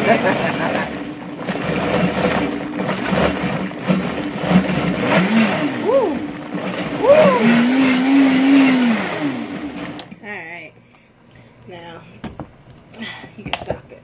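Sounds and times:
blender running: 0:00.0 - 0:10.1
swooping tones: 0:05.6 - 0:08.9.

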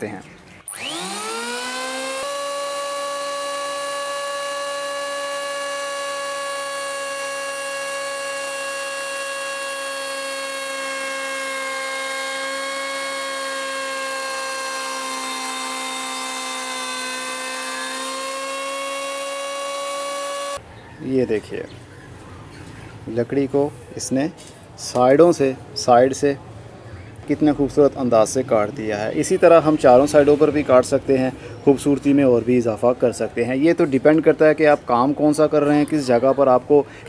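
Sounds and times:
electric planer whining: 0:00.6 - 0:20.6.

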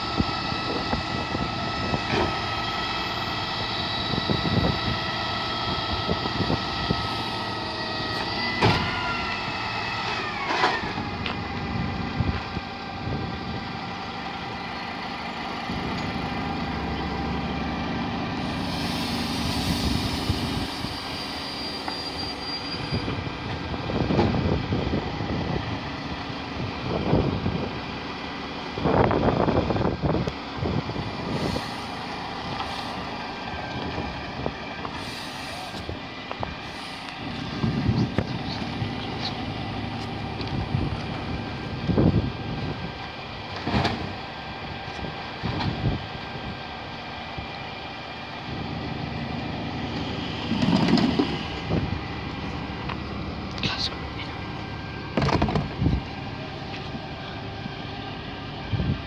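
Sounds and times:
hydraulics whining: 0:00.0 - 0:59.0
truck engine: 0:00.0 - 0:59.0
low steady drone: 0:11.0 - 0:21.5.

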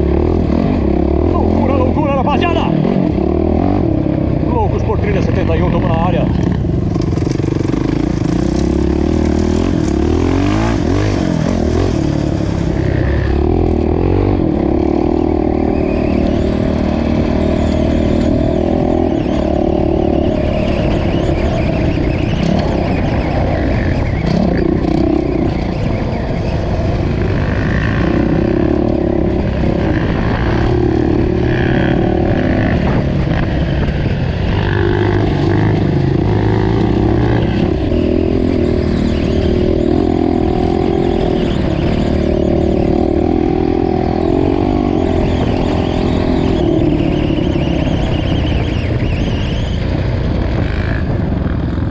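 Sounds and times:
off-road motorcycle engine: 0:00.0 - 0:51.9.

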